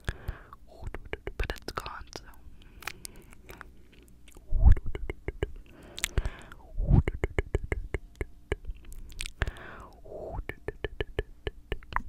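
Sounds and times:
wet mouth sounds: 0:00.7 - 0:02.0, 0:02.6 - 0:12.0
tongue clicks: 0:00.8 - 0:03.7, 0:04.3 - 0:06.3, 0:07.1 - 0:12.0
deep mouth pops: 0:04.3 - 0:09.5, 0:10.3 - 0:12.0.

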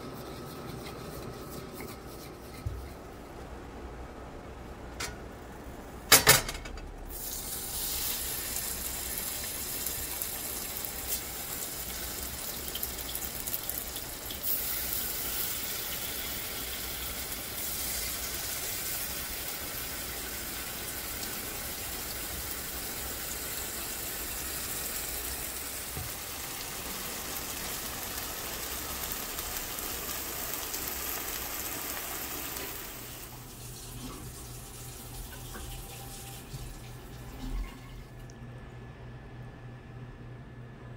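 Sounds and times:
fish sizzling in hot oil: 0:07.1 - 0:33.4.

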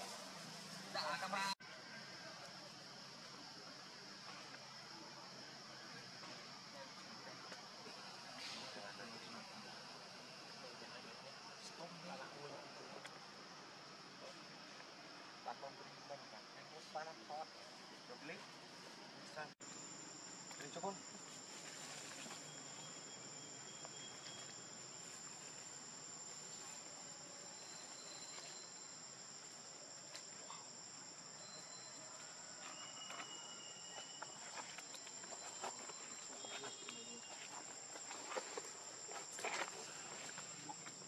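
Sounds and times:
insects buzzing trill: 0:19.4 - 0:41.0.

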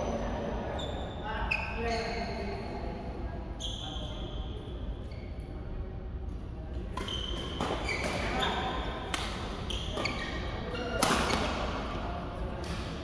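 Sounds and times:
shoes squeaking on court: 0:00.7 - 0:02.4, 0:06.9 - 0:11.9
racket hitting shuttlecock: 0:07.0 - 0:10.2, 0:10.9 - 0:11.9.

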